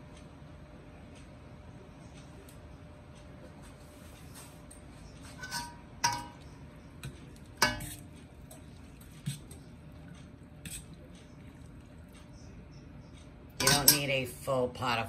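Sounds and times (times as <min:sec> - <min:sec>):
metal spoon clinking on pot: 0:05.4 - 0:08.6, 0:13.6 - 0:14.3.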